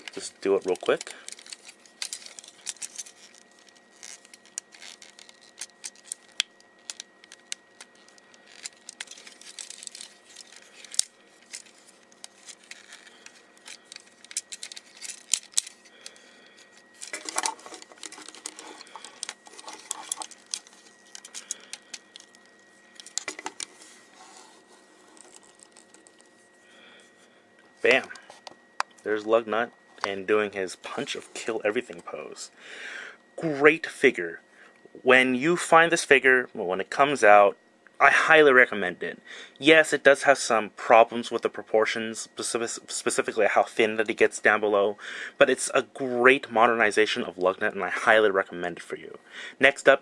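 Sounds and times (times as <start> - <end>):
handling rustle: 0.0 - 27.2.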